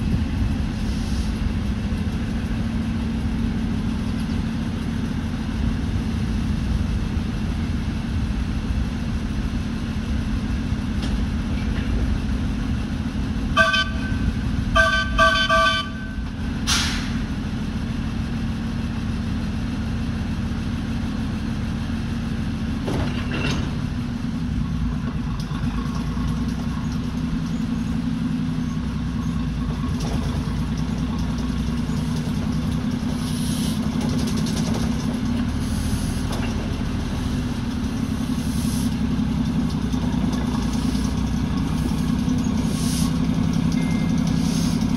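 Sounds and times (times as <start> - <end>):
steady low rumble: 0.0 - 17.4
steam locomotive whistle toots: 13.5 - 16.2.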